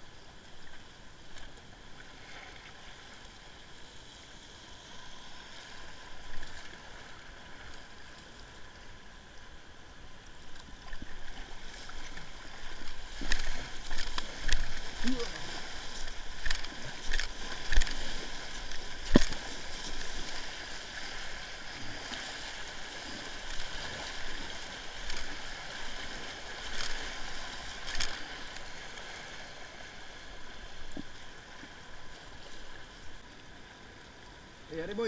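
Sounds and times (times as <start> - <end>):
kayak paddle splashes: 10.4 - 34.0
river rapid rushing: 12.0 - 30.6.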